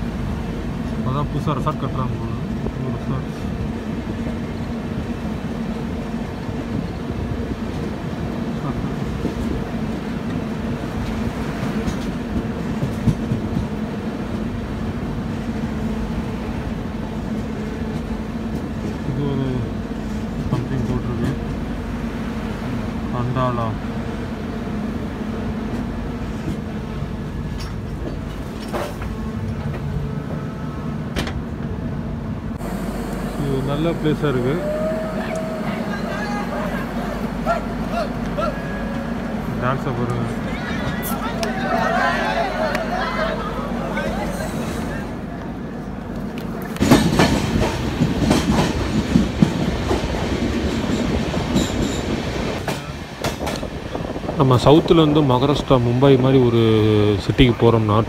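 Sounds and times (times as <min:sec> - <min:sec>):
train wheels rumbling on rail: 0:00.0 - 0:58.0
rail joint clacks: 0:07.6 - 0:15.1, 0:19.7 - 0:21.8, 0:25.6 - 0:30.4, 0:44.0 - 0:56.5.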